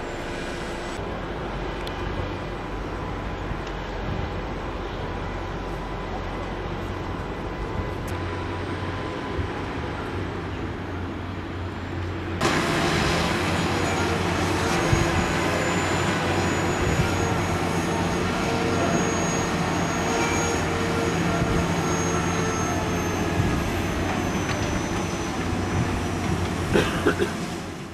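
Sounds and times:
thin high whine: 0.0 - 1.9, 12.4 - 26.3
construction machinery running: 0.0 - 27.9
diesel engine of drilling rig: 0.0 - 27.9.

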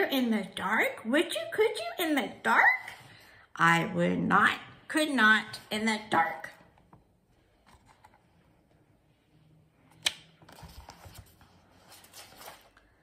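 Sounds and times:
book rustling: 9.8 - 13.0.

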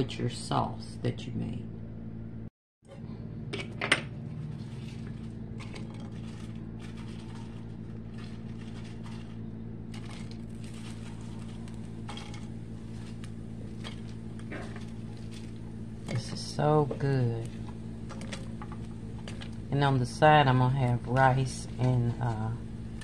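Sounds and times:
steady low hum: 0.0 - 23.0
utensil scraping food in skillet: 4.3 - 19.7.

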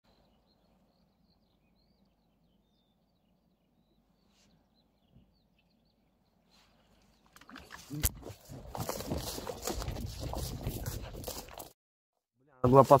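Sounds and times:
small birds chirping: 0.1 - 10.4.

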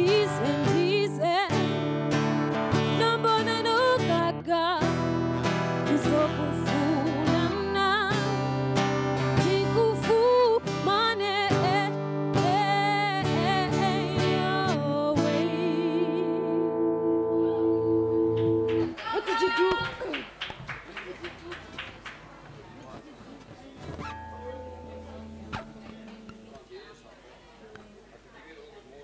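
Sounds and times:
strummed acoustic guitar: 0.0 - 18.9, 23.8 - 26.6
person singing: 5.9 - 8.2, 9.4 - 18.6.

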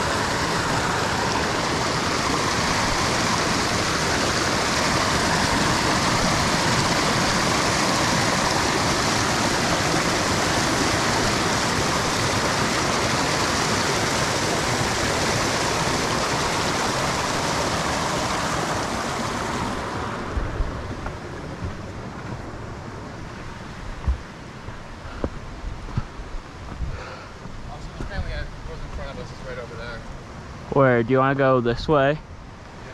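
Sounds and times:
water rushing over waterfall: 0.0 - 25.0.

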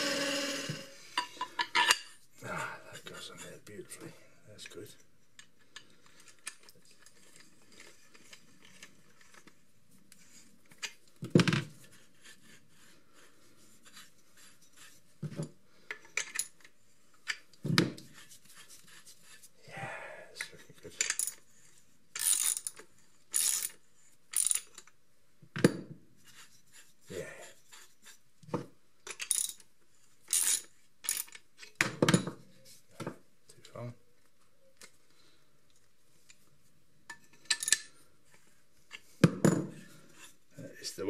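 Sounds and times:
rubbing and rustling: 11.7 - 15.4, 18.0 - 19.6, 26.0 - 28.4
metal tools clinking on workbench: 29.1 - 29.6, 37.1 - 37.9.

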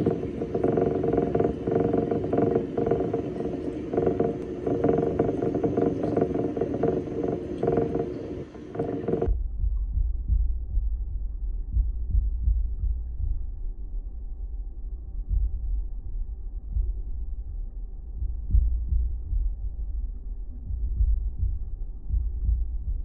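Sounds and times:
water rushing and pump: 0.0 - 9.3
deep low rumble: 0.0 - 23.0.

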